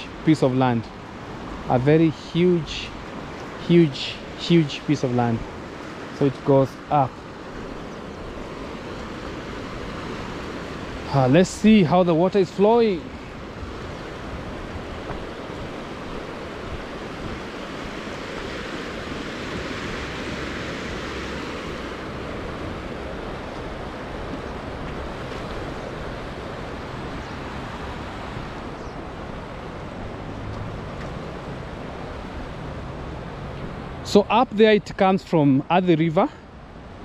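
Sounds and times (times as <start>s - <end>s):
wind buffeting microphone: 13.0s - 34.0s.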